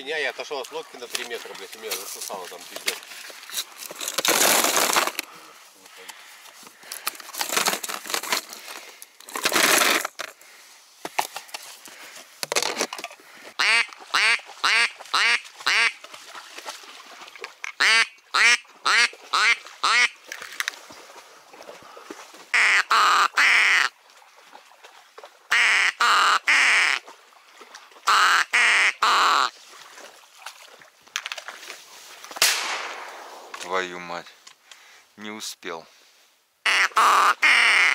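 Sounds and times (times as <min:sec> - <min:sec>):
ducks quacking: 0:13.6 - 0:16.0, 0:17.8 - 0:20.2, 0:22.6 - 0:23.9, 0:28.1 - 0:29.5, 0:36.7 - 0:37.9.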